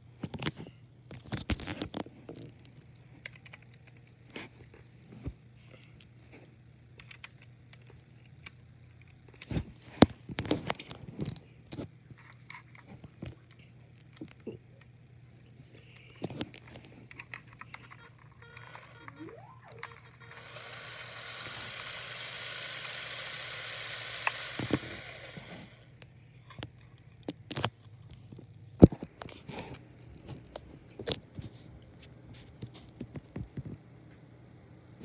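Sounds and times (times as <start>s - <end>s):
small electric motor whirring: 18.5s - 25.9s.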